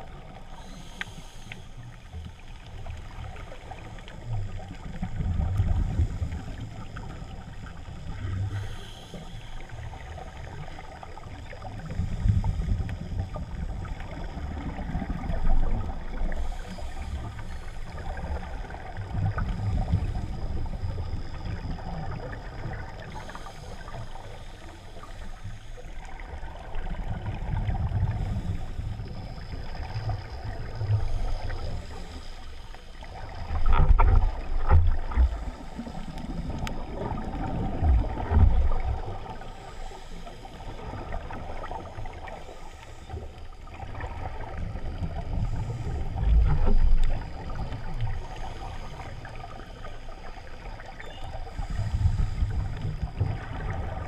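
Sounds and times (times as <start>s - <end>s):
underwater water rush: 0.0s - 54.0s
steady hiss: 0.1s - 5.0s, 5.7s - 21.9s.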